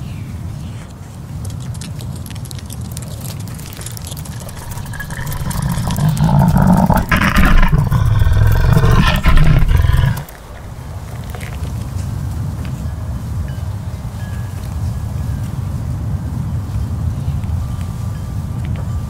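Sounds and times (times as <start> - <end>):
rough pitched cry: 3.9 - 10.4
deep monster rumble: 4.2 - 10.5.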